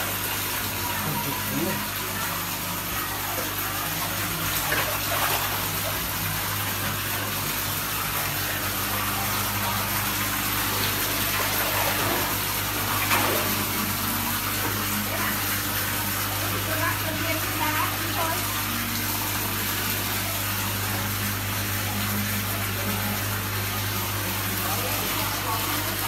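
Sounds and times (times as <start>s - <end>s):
tap water gushing onto tiled floor: 0.0s - 26.0s
splashes in shallow water: 4.6s - 5.8s.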